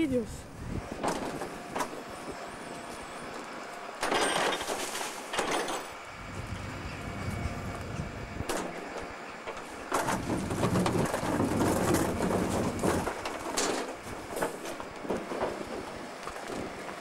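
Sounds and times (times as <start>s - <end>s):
truck engine and hydraulics hum: 0.0s - 17.0s
bin banging against hopper: 9.9s - 15.8s.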